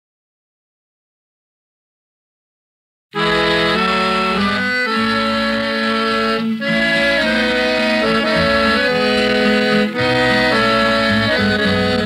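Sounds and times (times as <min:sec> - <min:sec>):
instrumental music with held chords: 0:03.2 - 0:12.0.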